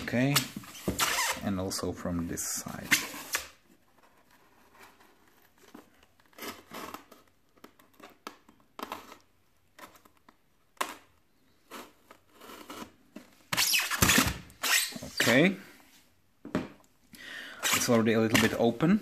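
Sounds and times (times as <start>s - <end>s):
knife cutting styrofoam: 6.2s - 8.0s, 10.8s - 15.4s.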